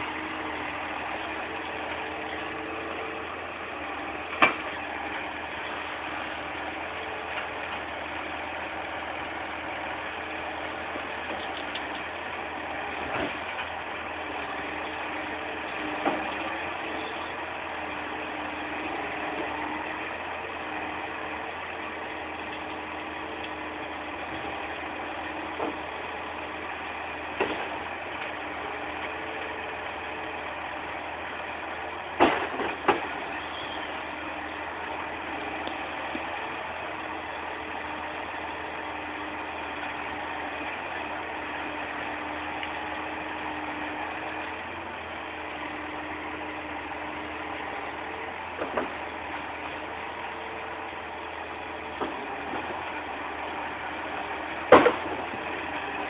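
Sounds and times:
diesel engine running: 0.0 - 56.0
logs knocking: 27.4 - 27.8, 32.2 - 33.2, 48.6 - 49.1, 51.8 - 52.9, 54.7 - 55.4.

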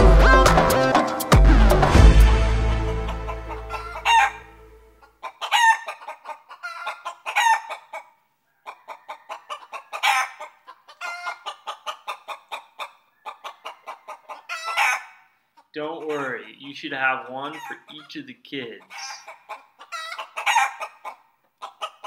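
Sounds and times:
chicken clucking: 2.7 - 22.0.

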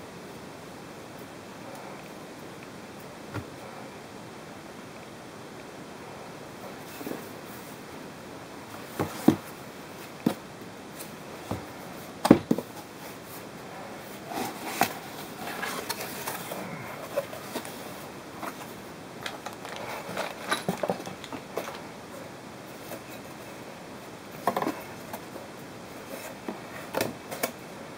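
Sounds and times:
cardboard rustling and scraping: 8.7 - 21.8.

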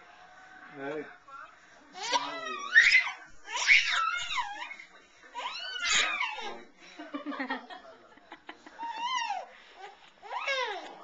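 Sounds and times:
baby squealing: 2.0 - 4.8, 5.4 - 6.6, 8.8 - 9.5, 10.2 - 11.0.

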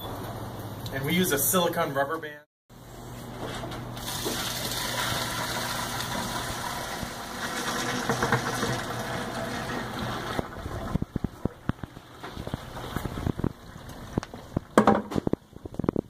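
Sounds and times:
liquid pouring from a bucket: 4.0 - 14.9.

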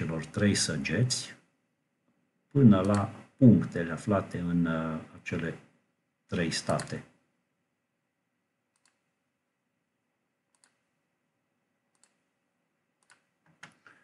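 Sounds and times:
computer mouse clicks: 2.8 - 3.1, 6.6 - 7.0, 8.7 - 9.2, 10.5 - 10.9, 11.9 - 12.3, 13.0 - 14.0.

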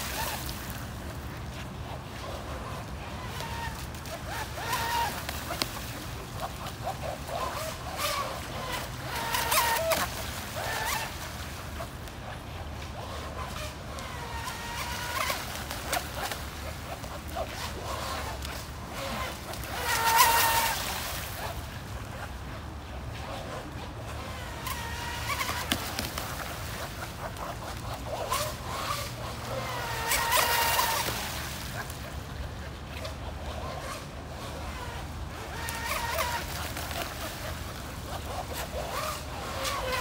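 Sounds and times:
high-pitched boat motor: 0.0 - 40.0.

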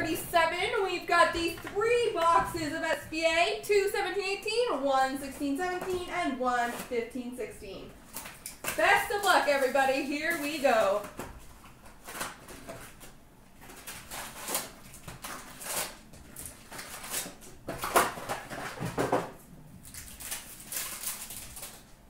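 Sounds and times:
paper and cardboard rustling: 5.2 - 7.4, 8.0 - 21.9.

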